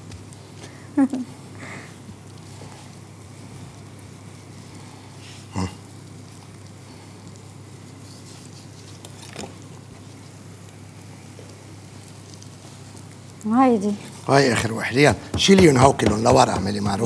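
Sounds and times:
steady low hum: 0.0s - 17.0s
knocks at a counter: 15.1s - 17.0s.

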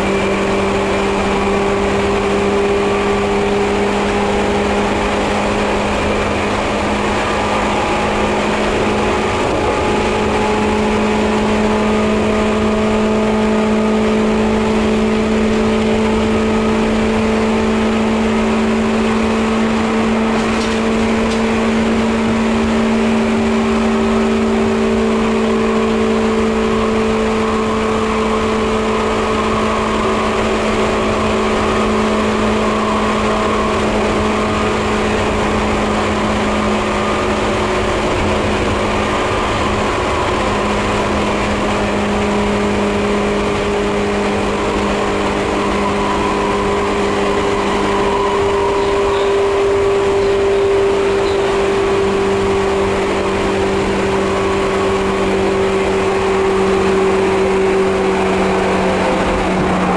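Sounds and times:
electric train motor hum: 0.0s - 59.9s
wheels rumbling on rail: 0.0s - 59.9s.

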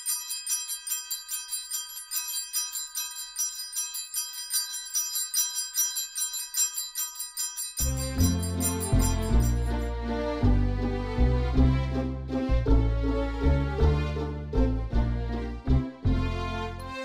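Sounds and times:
small bells jingling: 0.0s - 9.9s.

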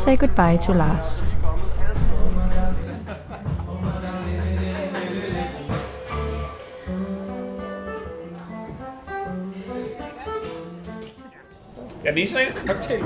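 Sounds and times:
bass line: 0.0s - 9.8s.

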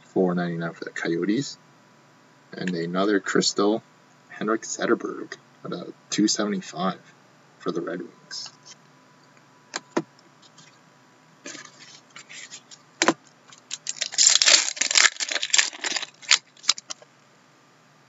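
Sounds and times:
cards rustling and scraping: 11.5s - 17.1s.

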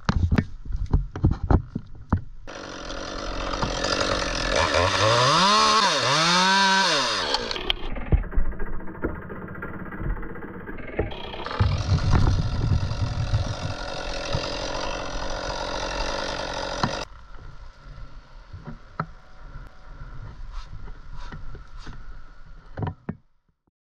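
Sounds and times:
chainsaw cutting tree trunk: 2.5s - 17.1s
low hum: 3.4s - 22.8s.

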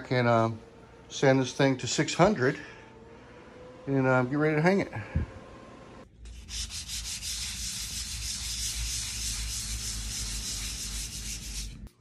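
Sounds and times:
hand sanding metal door: 6.3s - 11.9s.

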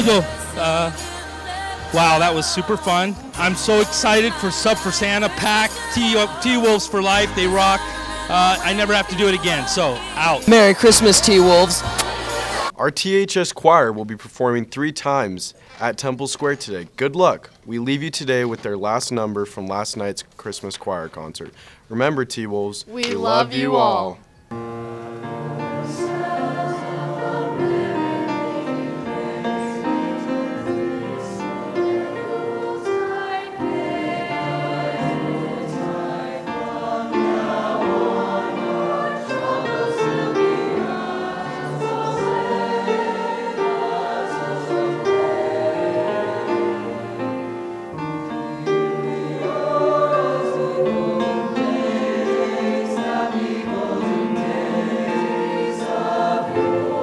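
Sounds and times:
choir singing in harmony: 0.0s - 12.8s, 24.5s - 57.0s.

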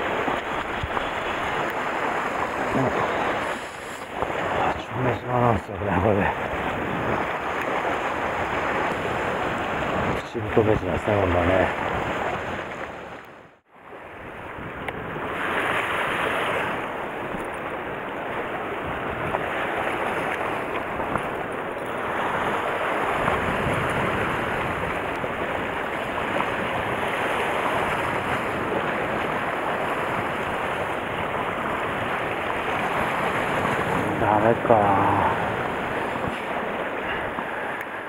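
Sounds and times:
waves on rocky shore: 0.0s - 38.0s
wind buffeting microphone: 0.0s - 38.0s.

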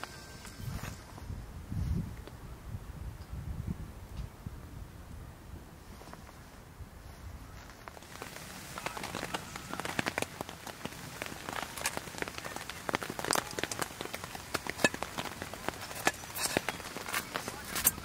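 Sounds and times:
rain falling: 7.6s - 18.0s.

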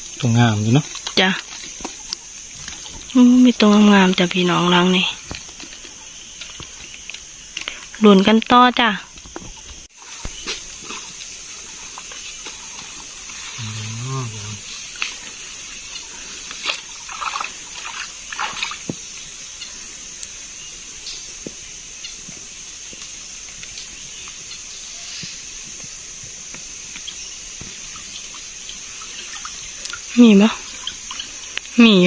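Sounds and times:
water dripping: 0.0s - 20.4s, 26.8s - 32.0s
steady high-pitched hiss: 0.0s - 32.0s
water splashing and sloshing: 0.0s - 32.0s.

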